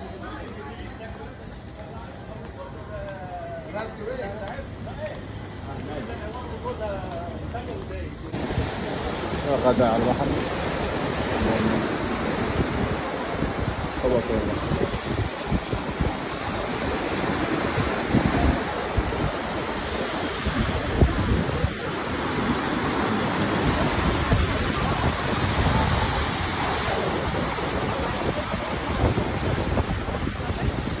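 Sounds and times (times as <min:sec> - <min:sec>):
surf washing onto beach: 0:03.8 - 0:31.0
wind buffeting microphone: 0:08.2 - 0:31.0.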